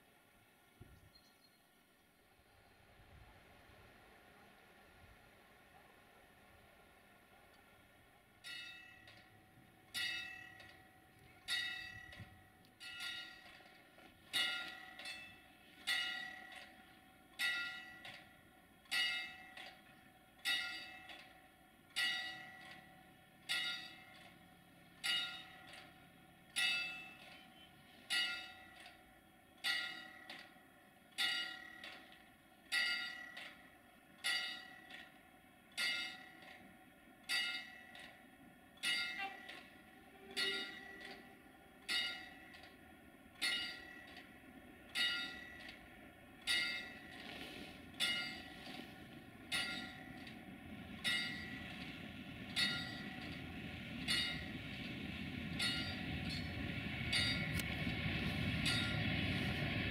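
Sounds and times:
bell ringing: 9.9s - 13.5s, 40.2s - 41.3s, 49.5s - 50.3s, 51.0s - 51.7s, 52.5s - 53.4s, 55.5s - 57.6s.

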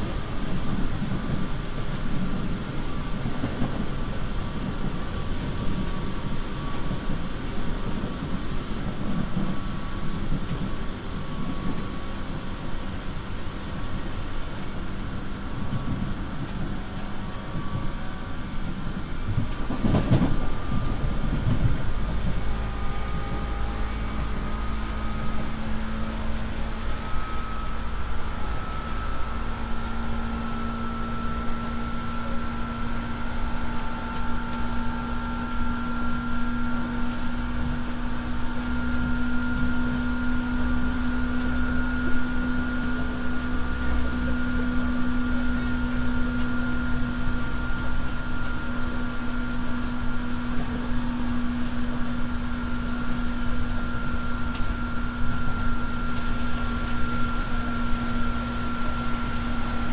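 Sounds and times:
train motor whine: 0.0s - 59.9s
wheels rumbling on rails: 0.0s - 59.9s.

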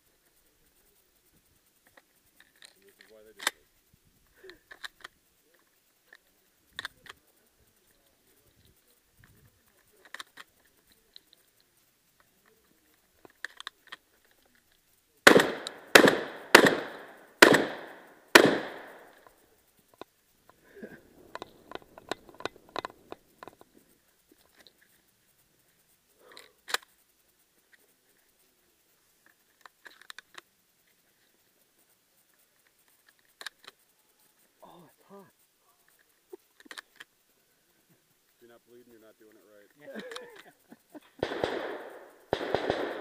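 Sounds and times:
clicks and clatter: 1.2s - 15.0s, 18.4s - 34.2s, 35.9s - 37.3s
shotgun shots: 15.2s - 19.2s, 41.2s - 43.0s
sharp crack: 15.2s - 23.8s, 40.0s - 43.0s.

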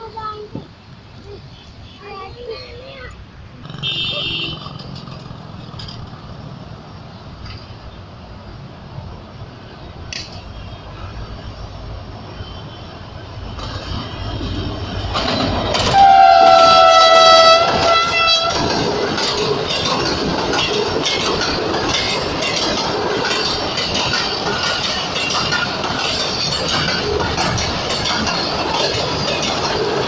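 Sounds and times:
locomotive horn: 3.8s - 4.6s, 15.7s - 18.7s
train wheels clattering: 4.5s - 6.8s, 13.5s - 30.0s.

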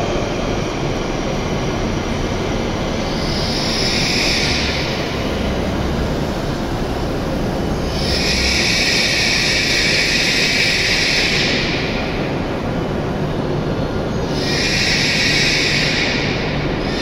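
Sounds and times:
train rumbling slowly: 0.0s - 17.0s.

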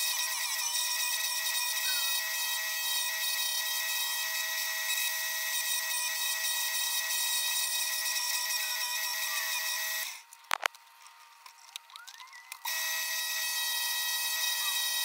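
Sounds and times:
drill press sanding whine: 0.0s - 10.2s, 12.7s - 15.0s.

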